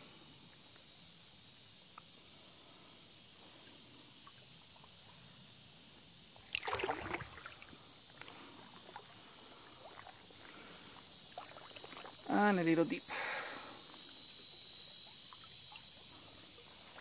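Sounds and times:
faint high hiss: 0.0 - 17.0
splashing and sloshing water: 6.4 - 12.3, 15.0 - 17.0.

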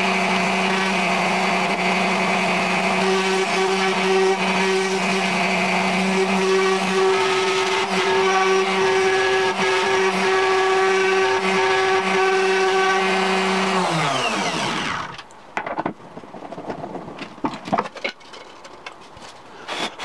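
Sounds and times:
router winding down: 0.0 - 15.2
wood router whining: 0.0 - 15.3, 19.6 - 20.0.

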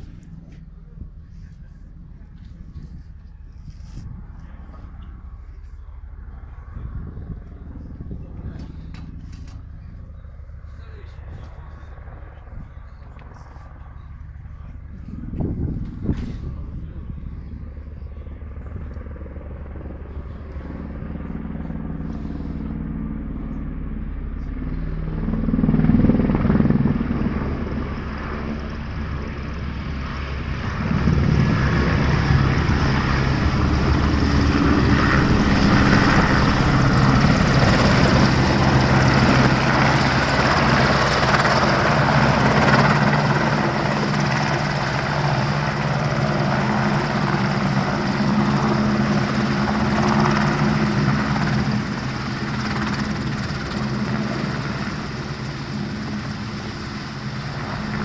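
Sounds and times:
helicopter rotor and engine: 0.0 - 58.0.

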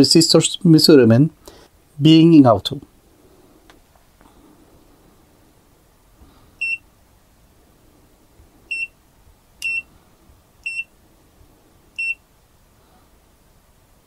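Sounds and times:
short high beep: 9.6 - 9.9.

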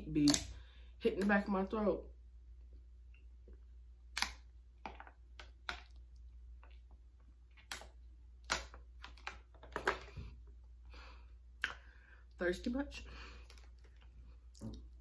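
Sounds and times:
person gulping water: 13.5 - 15.0.

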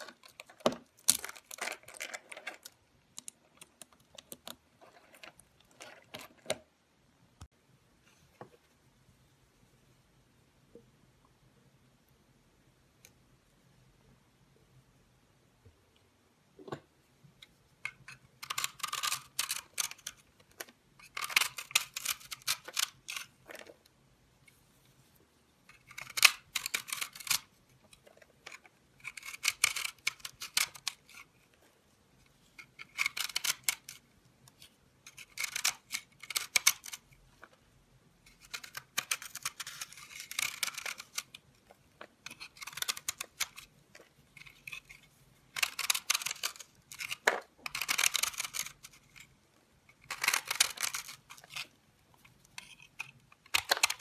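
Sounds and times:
knife scraping soap: 25.7 - 31.5, 32.6 - 34.0, 35.0 - 36.9, 42.2 - 43.7, 52.4 - 53.6.

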